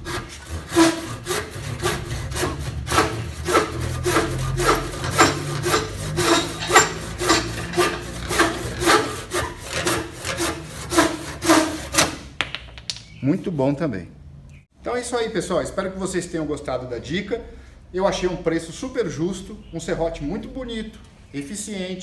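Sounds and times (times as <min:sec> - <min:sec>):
handsaw cutting a branch: 0:00.0 - 0:12.2.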